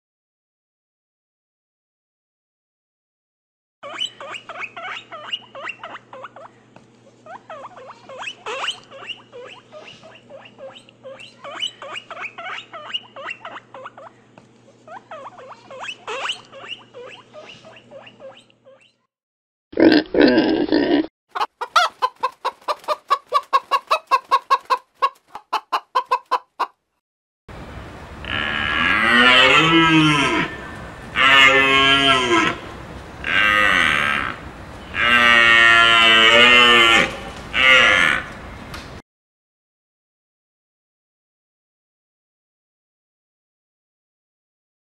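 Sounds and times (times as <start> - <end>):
soft animal chirps and chatter: 3.8 - 19.1.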